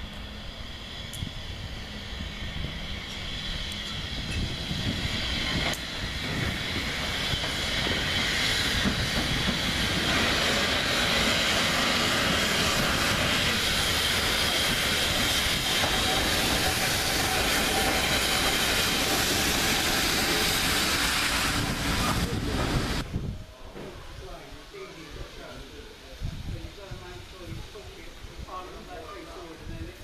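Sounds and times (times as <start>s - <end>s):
steam hissing: 0.0s - 30.0s
train wheels clattering on rails: 2.9s - 23.0s.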